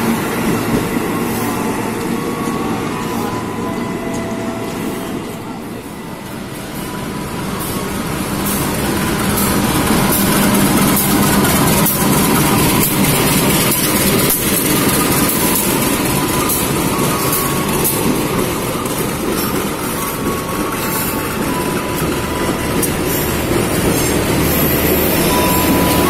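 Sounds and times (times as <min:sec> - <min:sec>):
locomotive passing close by: 0:06.3 - 0:26.0.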